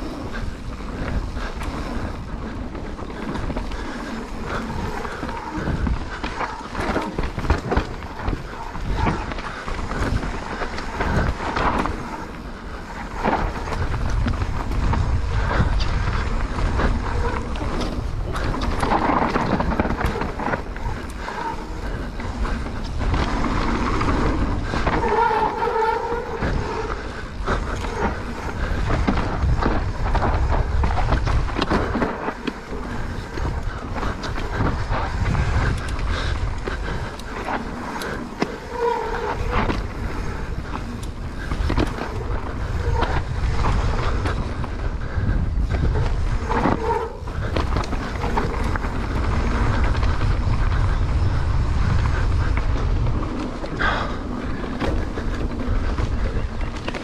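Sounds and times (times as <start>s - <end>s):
bike rattling over rough ground: 0.0s - 57.0s
wind rumbling on microphone: 0.0s - 57.0s.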